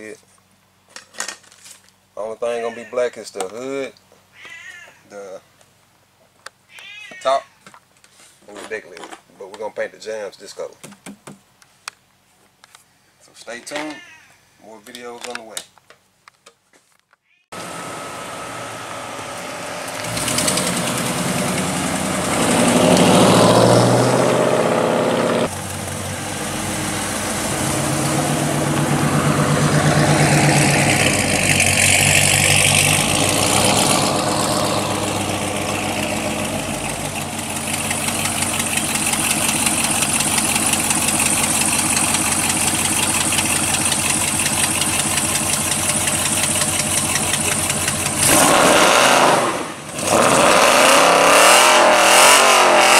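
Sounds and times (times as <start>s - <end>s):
car engine revving and idling: 17.6s - 52.9s.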